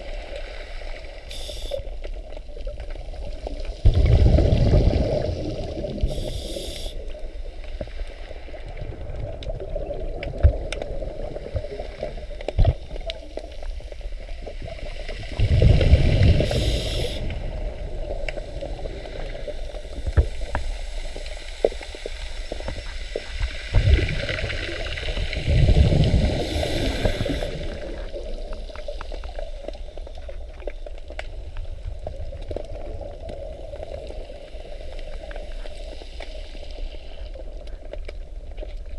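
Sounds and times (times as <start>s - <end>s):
underwater exhaled bubbles: 0.0s - 38.9s
small underwater clicks: 0.2s - 38.9s.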